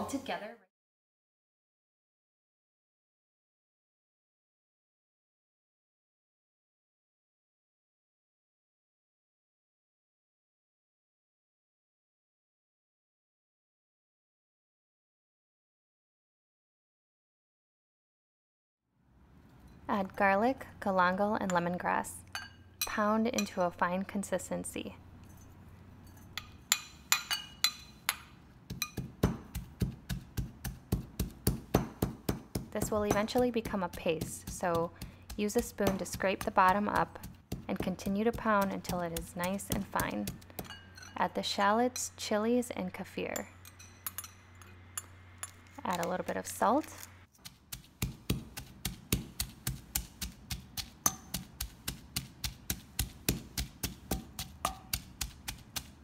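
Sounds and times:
metal spoon clinking glass bowl: 0:22.3 - 0:23.8, 0:25.2 - 0:29.1, 0:40.6 - 0:41.2, 0:43.6 - 0:46.1, 0:51.0 - 0:51.4
mortar bowl ringing: 0:26.1 - 0:28.2, 0:51.0 - 0:51.5
pestle pounding in a mortar: 0:28.7 - 0:40.8, 0:47.4 - 0:56.0.

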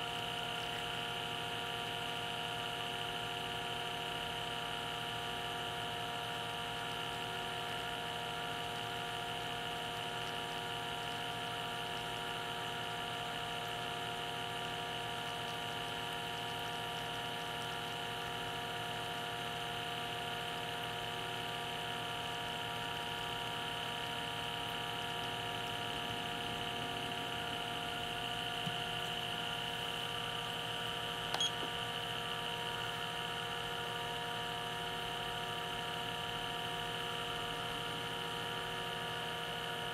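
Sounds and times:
vacuum pump whining: 0:06.4 - 0:39.9
click: 0:31.3 - 0:31.7.

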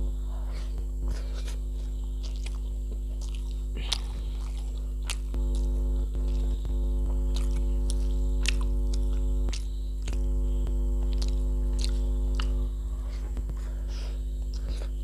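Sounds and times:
electrical mains hum: 0:00.0 - 0:15.0
chewing: 0:00.4 - 0:10.3, 0:11.0 - 0:14.9
fingers squishing rice: 0:00.6 - 0:12.7.

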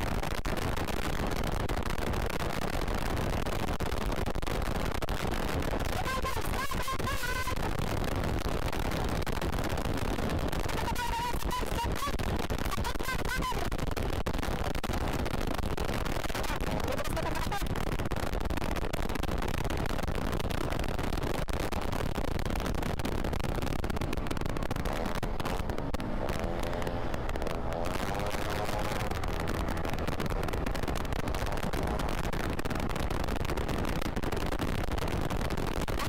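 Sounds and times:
wind buffeting microphone: 0:13.4 - 0:36.0.

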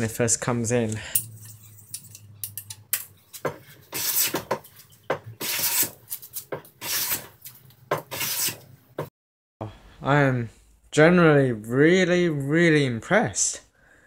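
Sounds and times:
hand plane scraping wood: 0:03.5 - 0:08.7.

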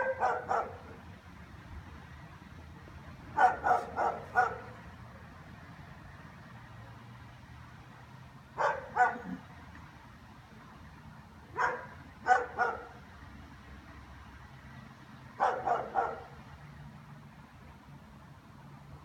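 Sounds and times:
dog barking: 0:00.0 - 0:01.0, 0:03.4 - 0:04.8, 0:08.6 - 0:09.4, 0:11.6 - 0:13.0, 0:15.4 - 0:16.4.

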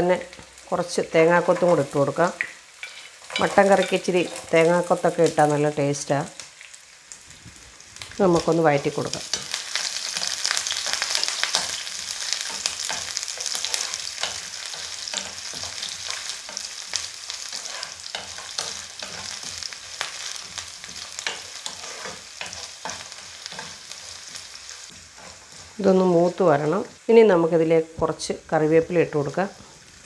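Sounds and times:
food sizzling in oil: 0:00.0 - 0:30.0
wooden spatula scraping pan: 0:17.4 - 0:25.8.

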